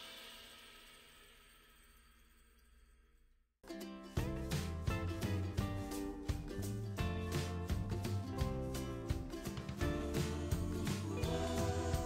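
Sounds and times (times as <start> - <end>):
background music held notes: 3.6 - 12.0.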